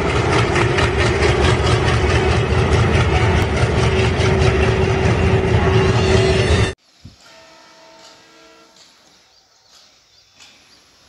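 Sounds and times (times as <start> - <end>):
diesel locomotive passing: 0.0 - 9.0.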